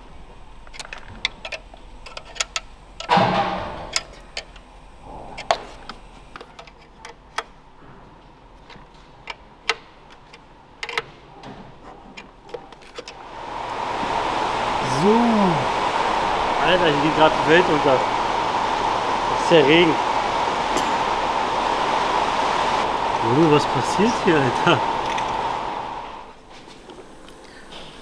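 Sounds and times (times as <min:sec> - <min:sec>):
metal clank: 0:03.1 - 0:04.4
heavy rain: 0:13.2 - 0:26.4.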